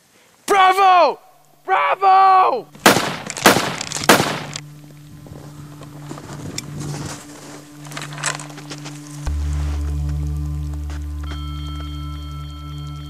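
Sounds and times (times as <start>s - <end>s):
low music drone: 2.7s - 13.0s
loud gunshots: 2.8s - 4.6s.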